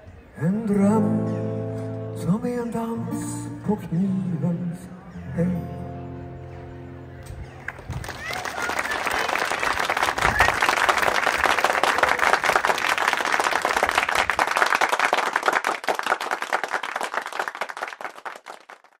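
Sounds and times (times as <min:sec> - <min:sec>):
audience applauding: 0:07.6 - 0:19.0.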